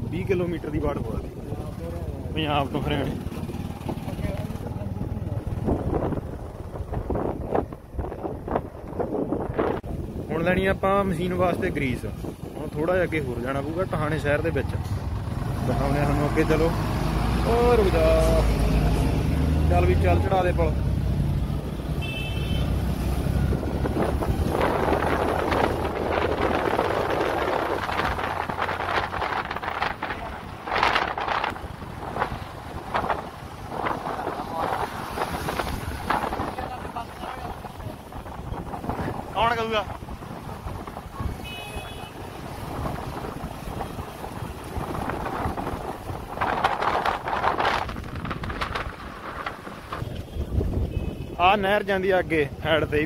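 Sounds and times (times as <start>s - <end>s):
road noise: 0.0s - 53.0s
wind noise on microphone: 5.3s - 12.9s, 22.1s - 51.8s.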